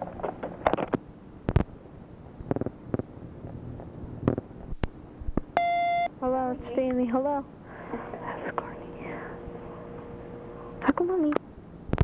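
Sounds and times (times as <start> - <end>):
tape hiss: 0.1 - 12.0
phone line clicks: 5.6 - 6.1.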